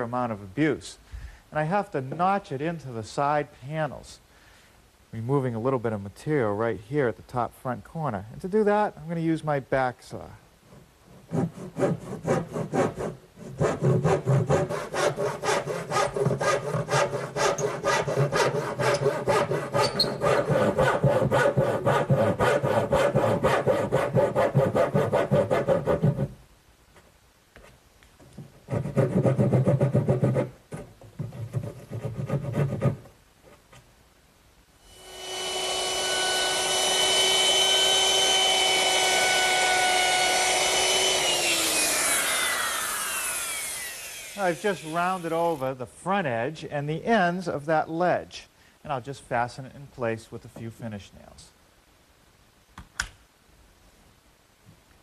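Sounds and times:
hand saw cutting wood: 11.1s - 26.3s, 28.7s - 30.6s, 31.2s - 33.0s, 34.9s - 45.6s
router whining: 34.9s - 45.6s.

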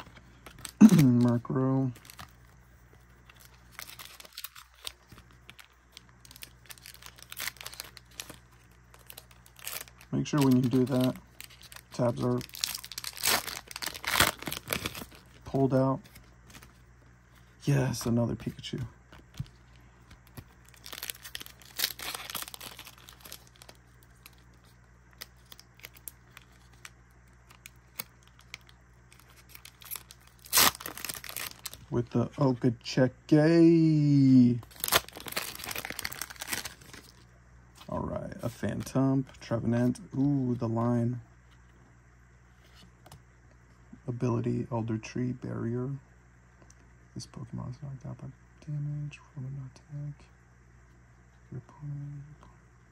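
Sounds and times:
foil wrapper crinkling: 0.0s - 16.8s, 19.2s - 32.0s, 34.6s - 37.2s.

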